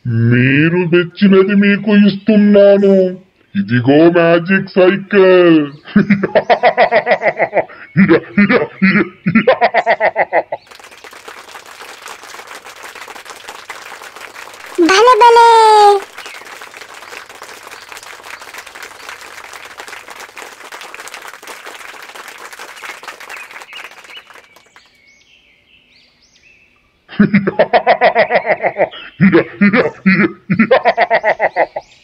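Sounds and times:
rapid high-pitched laughter: 5.8 - 10.6, 27.1 - 31.8.

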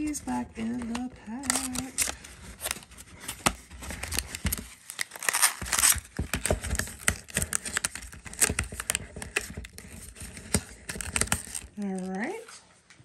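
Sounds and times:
paper box rustling and scraping: 0.0 - 12.4.

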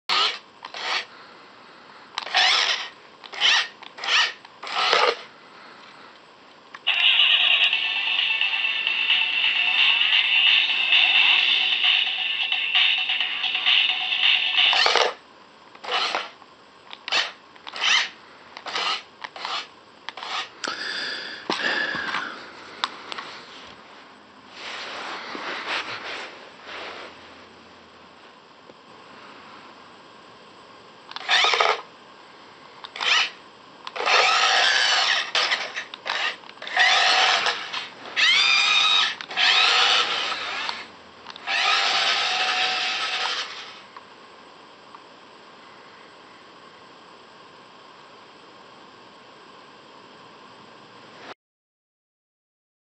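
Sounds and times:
toy car motor whirring: 0.1 - 1.1, 2.2 - 5.3, 6.8 - 15.2, 15.8 - 16.3, 17.0 - 20.5, 31.1 - 31.8, 32.9 - 43.8.

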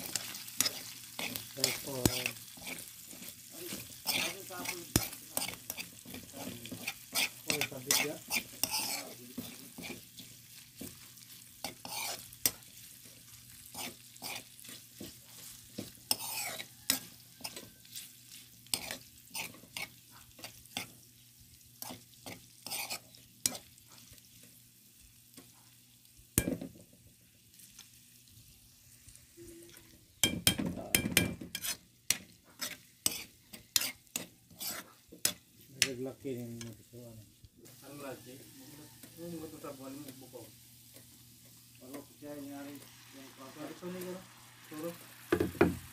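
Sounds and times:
metal spoon scraping wok: 0.0 - 21.0, 21.8 - 24.5, 31.5 - 36.0, 37.7 - 45.9
meat frying: 0.0 - 45.9.

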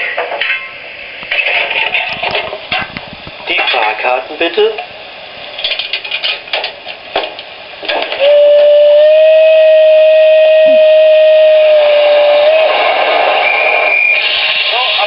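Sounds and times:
steam whistle: 8.2 - 15.0.

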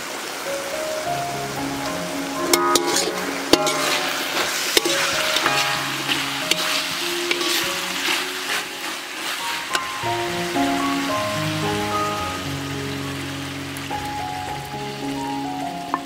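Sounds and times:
meat sizzling in a wok: 0.0 - 16.0
metal spatula scraping a wok: 2.4 - 10.0.

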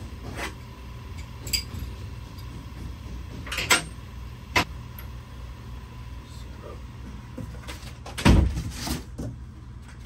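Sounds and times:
low shop hum: 0.0 - 10.0
metal tools clinking: 1.1 - 1.9.

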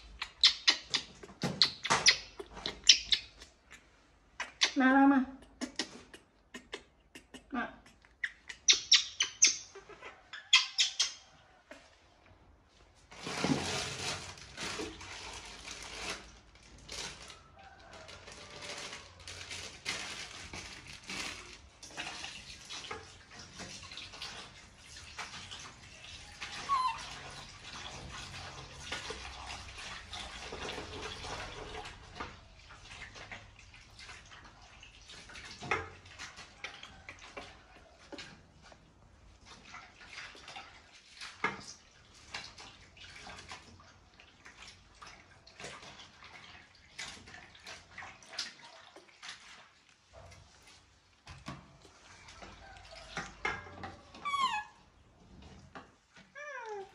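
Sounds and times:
baby monkey squeaking: 0.2 - 3.4, 8.2 - 11.2, 26.6 - 27.1, 54.2 - 54.8.

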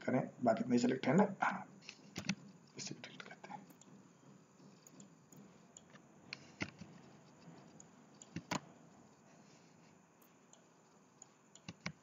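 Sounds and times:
computer mouse and keyboard clicks: 1.8 - 4.0, 4.6 - 9.6, 10.2 - 12.0.

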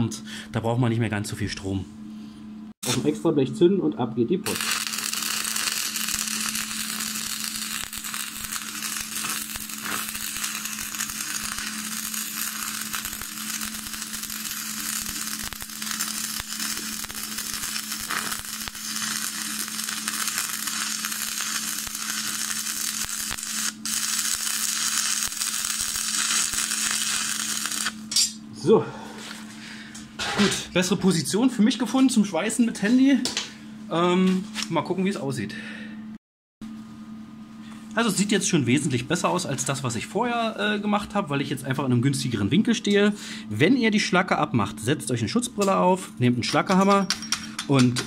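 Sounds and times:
steady hum: 0.0 - 48.0
welding arc crackling: 4.4 - 28.2.

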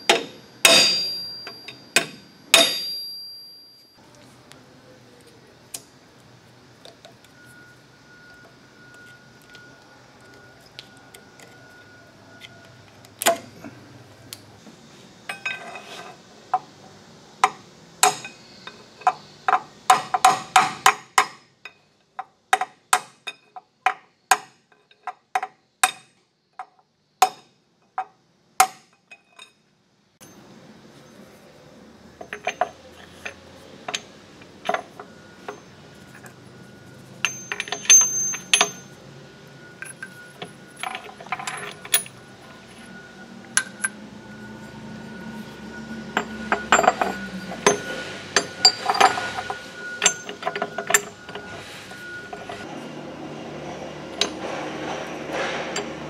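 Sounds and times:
metallic taps with ring: 37.2 - 38.9.

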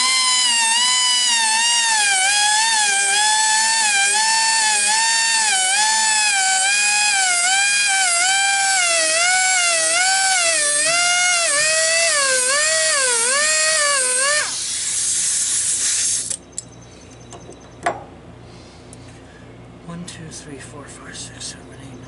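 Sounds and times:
rotary grinder whining on saw blade: 0.0 - 14.7
hiss: 0.0 - 16.4.

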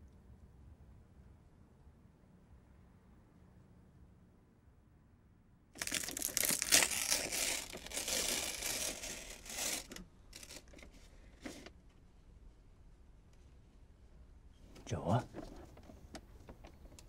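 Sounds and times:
paper envelope tearing: 5.8 - 11.0
paper crinkling: 5.8 - 11.7.

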